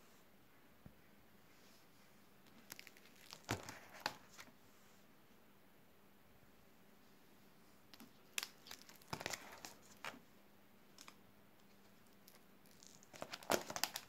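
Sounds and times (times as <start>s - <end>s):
plastic sleeves crinkling: 2.4s - 4.5s, 7.9s - 10.2s, 10.9s - 14.0s.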